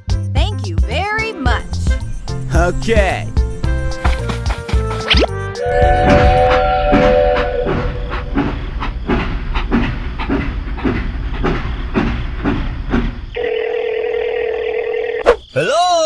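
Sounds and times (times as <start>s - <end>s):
toy train whistle: 5.6s - 8.4s
steady whistle-like tone: 5.6s - 8.9s.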